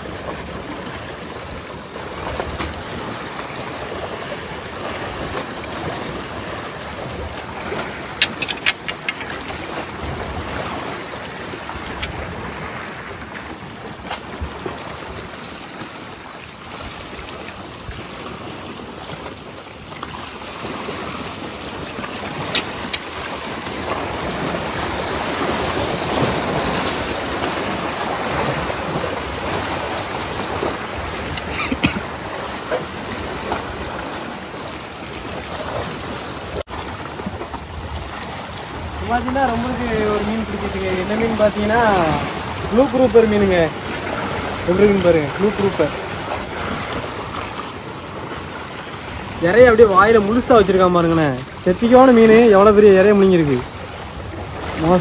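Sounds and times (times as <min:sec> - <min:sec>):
waves splashing against rocks: 0:00.0 - 0:55.0
sharp clicks: 0:08.2 - 0:09.4.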